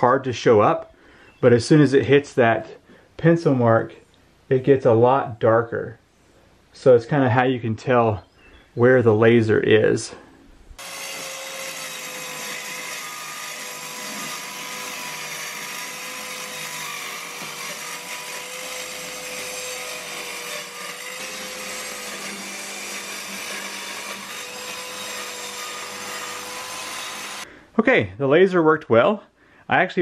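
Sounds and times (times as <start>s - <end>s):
circular saw cutting board: 10.8s - 27.5s.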